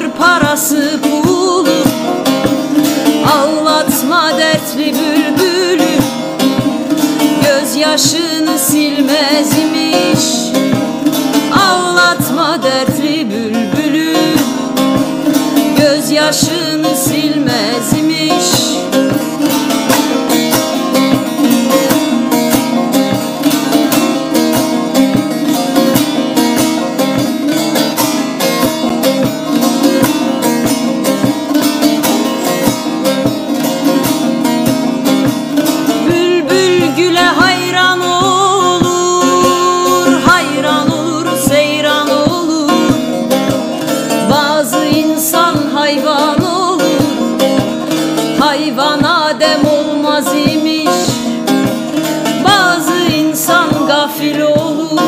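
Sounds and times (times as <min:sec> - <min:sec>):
plucked lutes playing folk melody: 0:00.0 - 0:55.0
person singing ornamented: 0:36.2 - 0:42.9.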